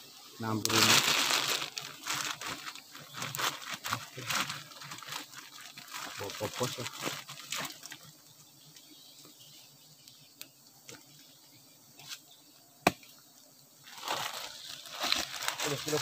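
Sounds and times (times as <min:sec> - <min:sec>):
plastic bag rustling: 0:00.6 - 0:08.1, 0:13.8 - 0:16.0.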